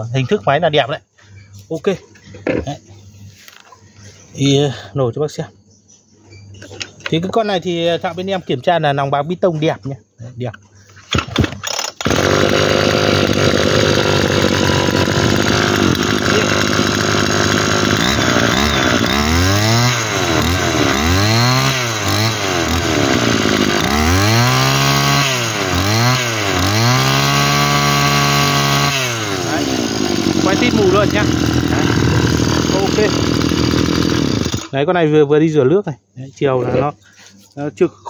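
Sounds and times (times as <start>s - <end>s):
brushcutter engine revving: 11.1s - 34.8s.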